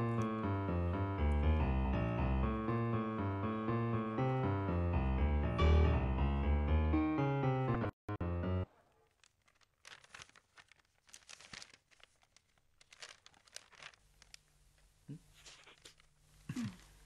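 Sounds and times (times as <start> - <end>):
magazine pages rustling: 8.9 - 17.0.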